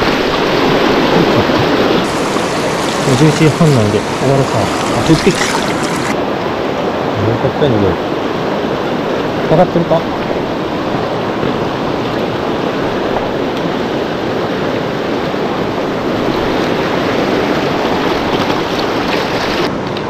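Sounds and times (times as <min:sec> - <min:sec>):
river water rushing: 0:00.0 - 0:20.0.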